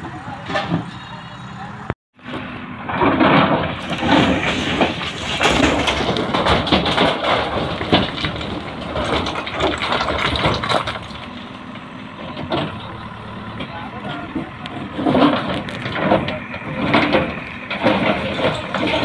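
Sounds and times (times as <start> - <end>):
diesel engine working under load: 0.0 - 19.0
loader bucket scraping stones: 2.2 - 19.0
stones grinding and clattering: 3.7 - 11.3.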